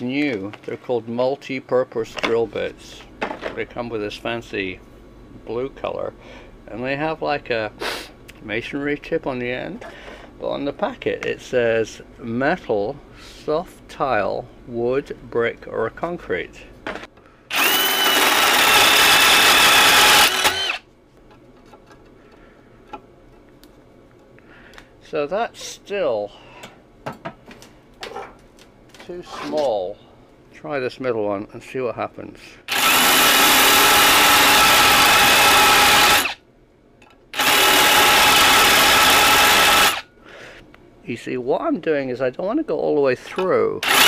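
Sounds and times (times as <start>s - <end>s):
drill bit boring into steel: 17.5s - 20.8s, 32.7s - 36.4s, 37.4s - 40.0s
electric drill whining: 17.5s - 20.8s, 32.7s - 36.4s, 37.4s - 40.0s.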